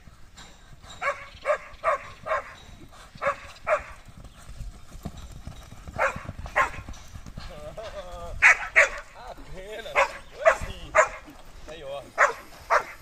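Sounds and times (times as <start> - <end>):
hoofbeats on loose dirt: 0.0 - 13.0
dog barking: 1.0 - 2.6, 3.2 - 4.0, 6.0 - 6.8, 8.4 - 9.0, 9.9 - 11.3, 12.2 - 13.0.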